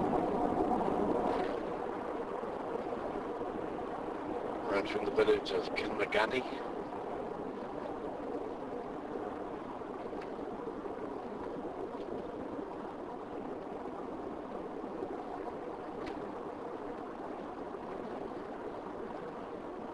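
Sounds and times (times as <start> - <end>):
faint ticks: 9.4 - 13.8, 15.1 - 19.4.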